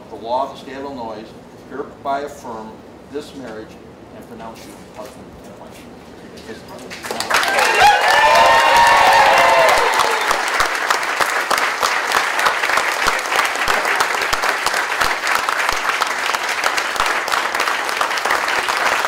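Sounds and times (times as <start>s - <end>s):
crowd applauding: 6.9s - 19.0s
people cheering: 7.2s - 19.0s.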